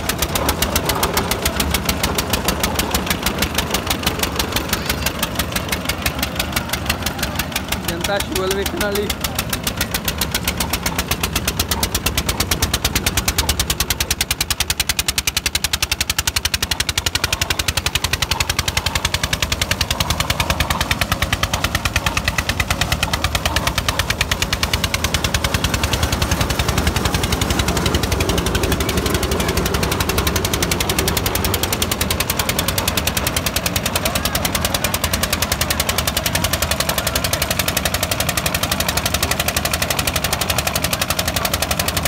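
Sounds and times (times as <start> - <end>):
diesel engine exhaust beat: 0.0 - 42.0.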